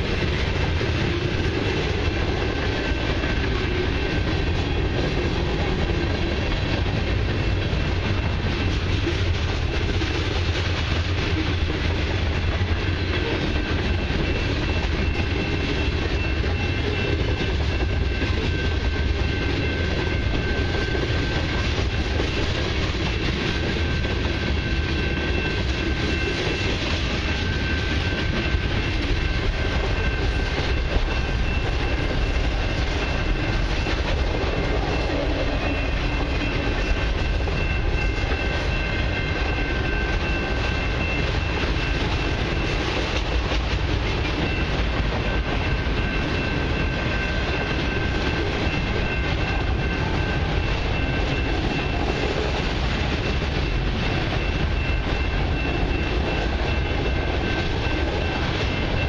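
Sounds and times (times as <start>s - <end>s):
train low rumble: 0.0s - 59.0s.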